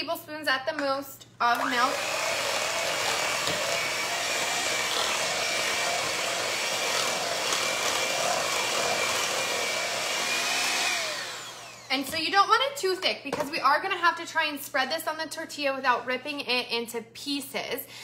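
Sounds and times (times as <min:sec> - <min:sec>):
electric hand mixer whining: 0:01.6 - 0:12.2.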